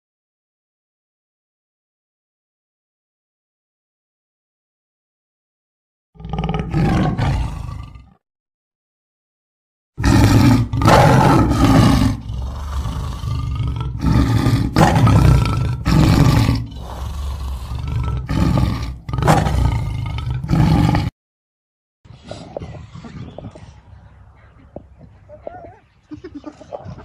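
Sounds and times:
big cat growling and roaring: 6.2 - 8.2, 10.0 - 21.2.

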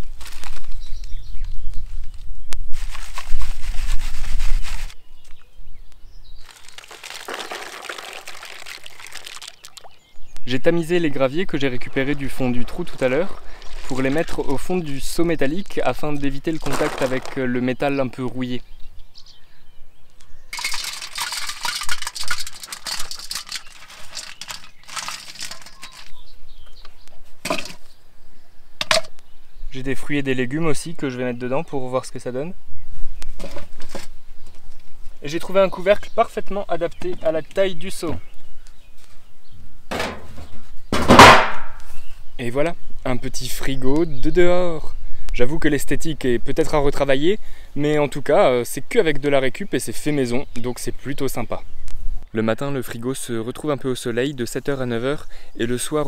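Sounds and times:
footsteps on soil and grass: 0.0 - 5.4, 6.4 - 9.9, 12.0 - 15.1, 16.0 - 17.6
gravel rattling into water bucket: 6.4 - 10.0, 11.6 - 17.7, 20.5 - 26.3, 27.4 - 27.9, 28.8 - 29.1.

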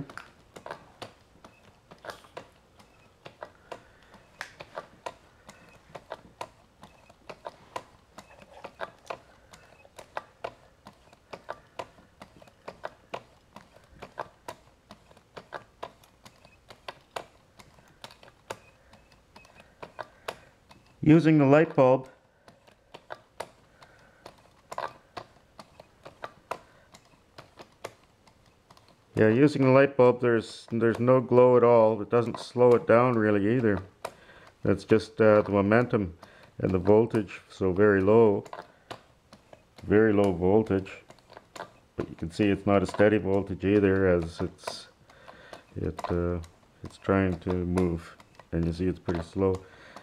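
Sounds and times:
light irregular clicking: 0.0 - 50.0.

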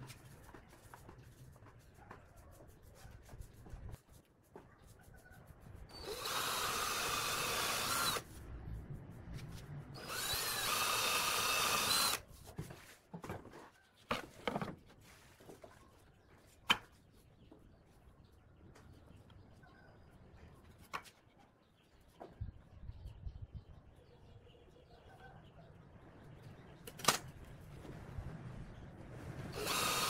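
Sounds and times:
cordless drill boring into wood: 5.9 - 8.2, 10.0 - 12.2, 29.5 - 30.0.

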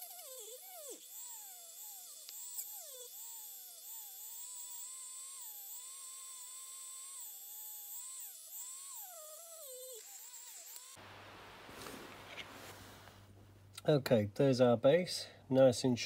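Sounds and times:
rotary tool motor whine: 0.0 - 11.0.

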